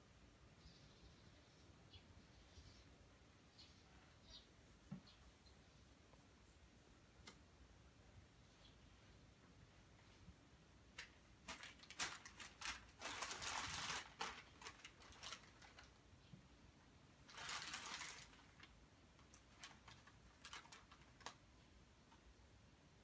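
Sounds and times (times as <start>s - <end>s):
paper crinkling under a cat: 10.9s - 16.1s, 17.2s - 21.6s.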